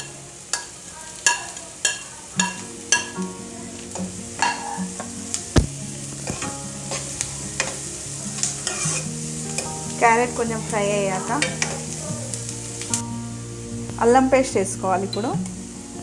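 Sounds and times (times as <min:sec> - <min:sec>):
vegetables sizzling: 0:00.0 - 0:16.0
spatula scraping a wok: 0:06.4 - 0:07.8, 0:08.4 - 0:09.7.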